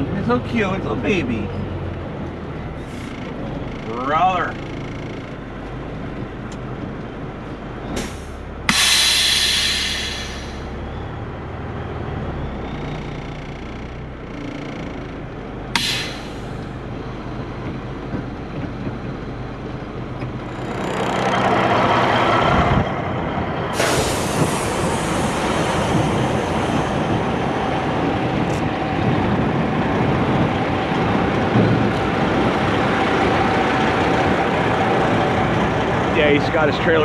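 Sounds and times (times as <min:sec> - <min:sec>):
diesel truck engine idling: 0:00.0 - 0:37.0
rush of hiss: 0:08.7 - 0:10.6, 0:15.8 - 0:16.4.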